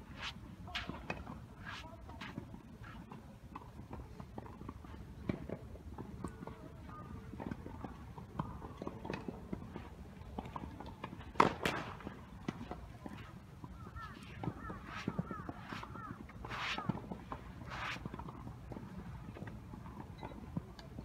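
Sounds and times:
tennis balls bouncing and struck: 0.0s - 21.0s
racket hitting ball: 0.2s - 2.4s, 11.4s - 12.9s, 13.8s - 18.1s.

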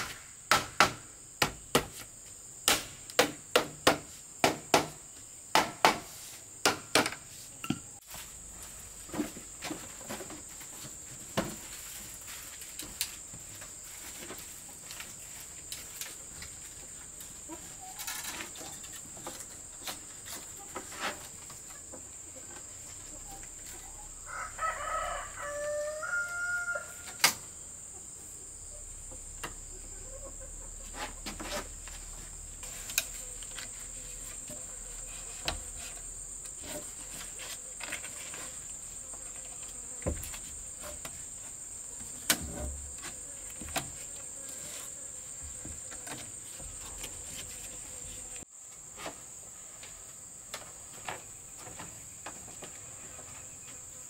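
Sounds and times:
bamboo slats knocking: 0.0s - 2.0s, 2.6s - 7.8s
high insect drone: 0.0s - 54.0s
rooster crowing: 24.0s - 27.2s.

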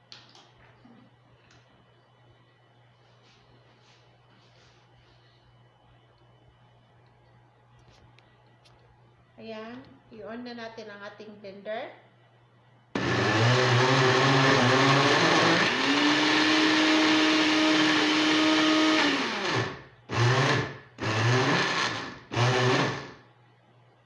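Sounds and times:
blender motor running: 13.0s - 23.2s.

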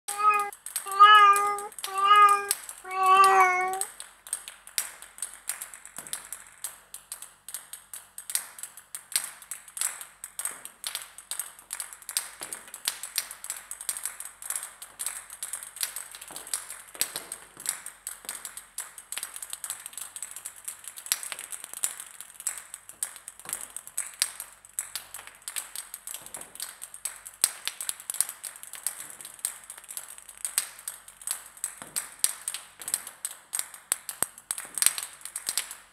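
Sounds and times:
cat meowing: 0.0s - 3.9s.

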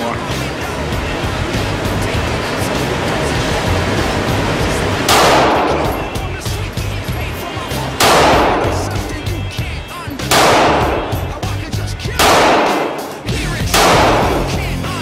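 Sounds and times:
pistol shots echoing indoors: 5.0s - 6.4s, 8.0s - 9.4s, 10.2s - 14.8s.

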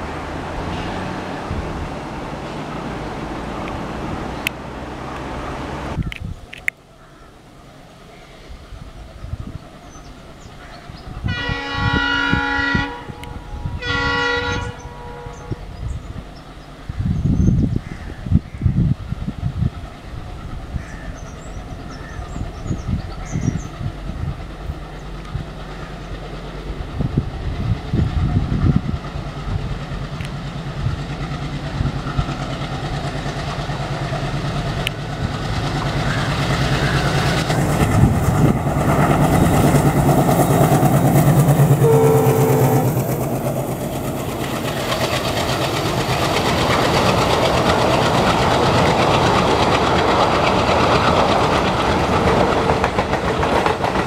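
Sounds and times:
diesel locomotive engine throbbing: 0.0s - 6.1s, 8.8s - 54.0s
train horn note: 11.2s - 15.7s, 41.6s - 43.2s
wheels clattering over rail joints: 42.7s - 54.0s.

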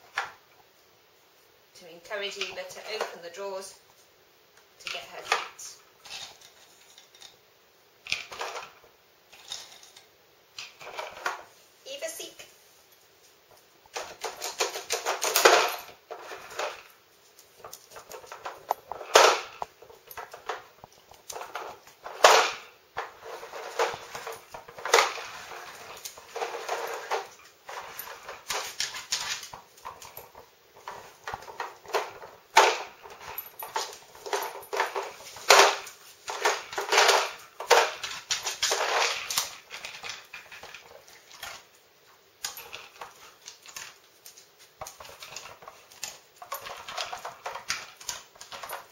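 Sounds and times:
hard plastic clattering: 13.9s - 16.9s, 17.6s - 41.7s, 42.4s - 48.9s.

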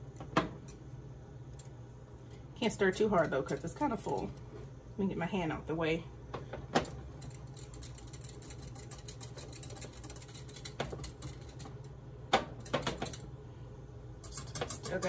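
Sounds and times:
steady low hum: 0.0s - 15.0s
whisk clicking against glass cup: 7.2s - 11.6s.

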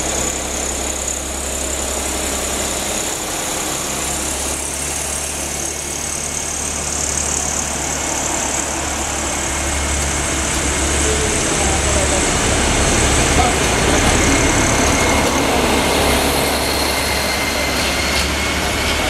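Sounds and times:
railcar diesel engine drone: 0.0s - 19.0s.

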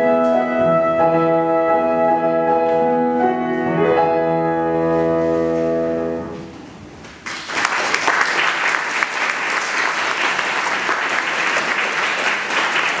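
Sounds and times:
audience applause: 7.2s - 13.0s.

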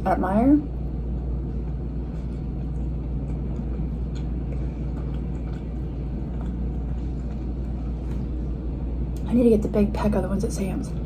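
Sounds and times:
steady low hum: 0.0s - 11.0s
person chewing food: 1.0s - 9.2s.

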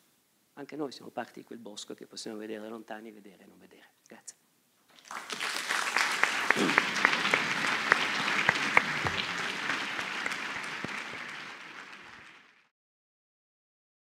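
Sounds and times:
audience applauding: 4.9s - 12.7s.

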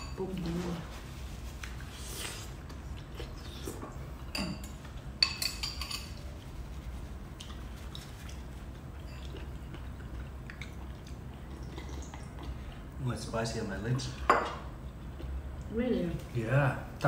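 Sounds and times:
low steady hum: 0.0s - 17.0s
person sipping soup: 9.2s - 12.9s.

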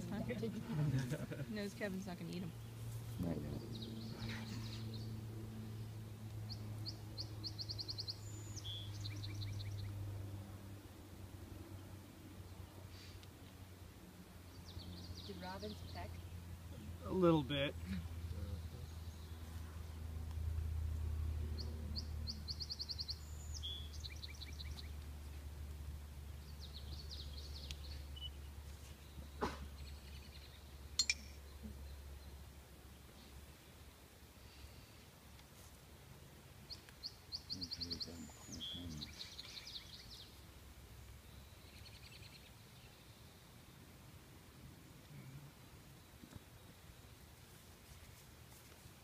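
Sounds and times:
songbird singing: 0.0s - 13.8s, 14.4s - 35.5s, 36.3s - 48.2s
steady low hum: 0.0s - 41.9s
low rumble: 2.4s - 7.3s.

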